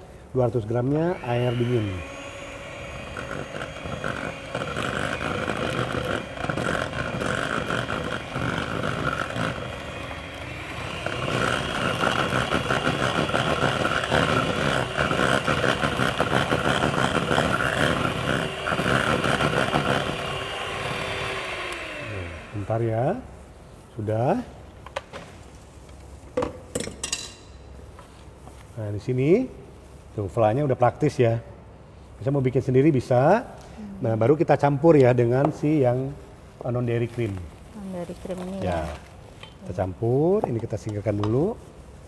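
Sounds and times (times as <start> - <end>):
electric hand mixer whining: 0.8 - 23.2.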